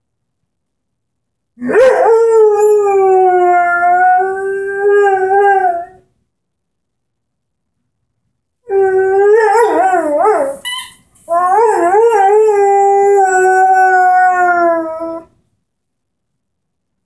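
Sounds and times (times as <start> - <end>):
dog howling: 1.6 - 6.0, 8.6 - 10.6, 11.3 - 15.3.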